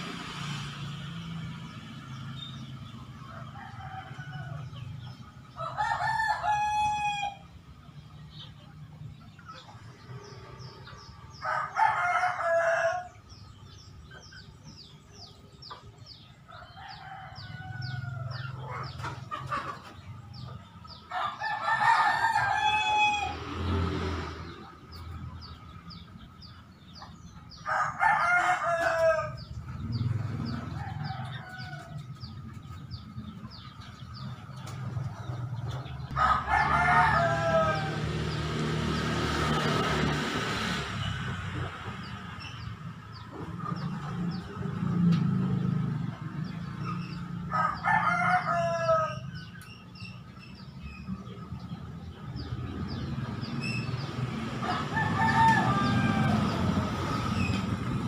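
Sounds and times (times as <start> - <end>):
sparrows chirping: 0.0 - 58.0
rooster crowing: 5.6 - 7.5, 11.3 - 13.2, 21.1 - 23.8, 27.6 - 32.2, 36.1 - 38.4, 47.5 - 49.5, 54.6 - 57.5.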